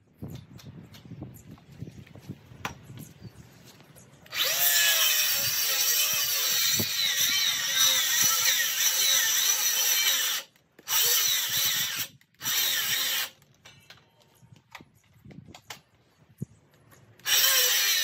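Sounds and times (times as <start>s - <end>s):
power tool whining: 4.2s - 13.4s, 17.2s - 18.0s.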